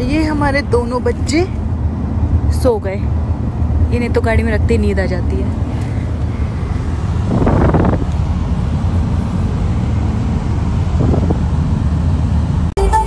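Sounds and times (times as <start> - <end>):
car road and engine rumble: 0.0 - 13.0
wind noise on microphone: 5.5 - 12.7.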